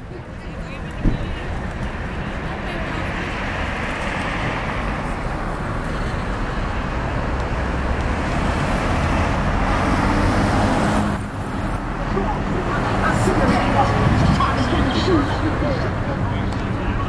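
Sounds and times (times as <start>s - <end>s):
road traffic: 0.0s - 17.0s
car passing: 1.3s - 17.0s.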